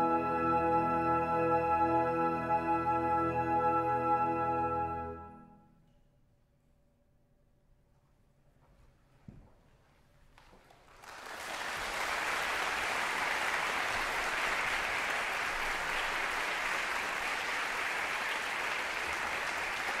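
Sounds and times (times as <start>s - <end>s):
audience applauding: 10.5s - 20.0s.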